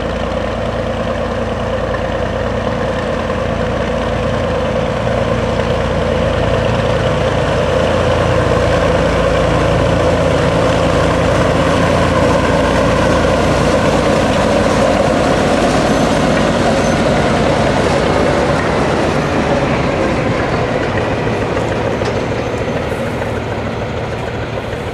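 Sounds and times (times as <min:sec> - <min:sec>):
diesel locomotive engine hum: 0:00.0 - 0:24.9
wheels turning on rails: 0:00.0 - 0:24.9.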